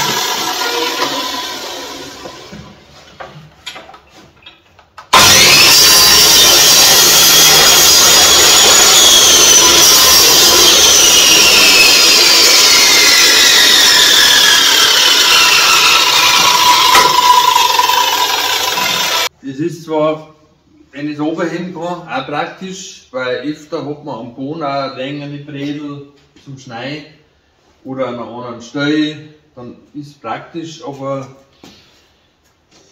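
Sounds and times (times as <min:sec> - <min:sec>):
miter saw motor whining: 0:00.0 - 0:02.6, 0:05.1 - 0:19.3.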